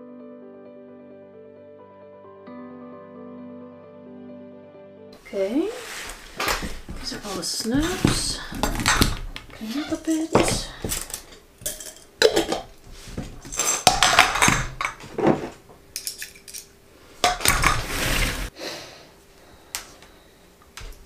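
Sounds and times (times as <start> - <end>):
rustling scrape: 5.4 - 11.0, 12.8 - 13.9, 17.5 - 18.5
glass jars and tools clinking: 7.8 - 17.9.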